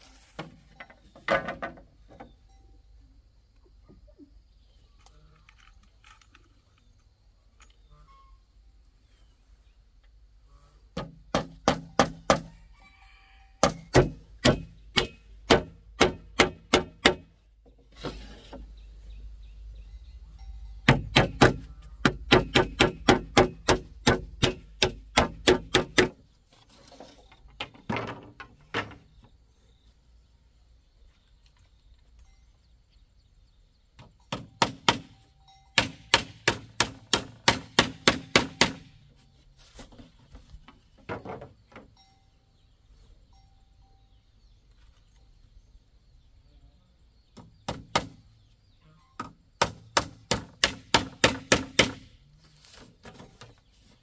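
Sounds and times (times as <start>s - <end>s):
hammer striking nails: 11.0s - 12.5s, 13.6s - 17.3s, 20.8s - 26.2s, 34.3s - 35.2s, 35.8s - 38.9s, 49.6s - 52.1s.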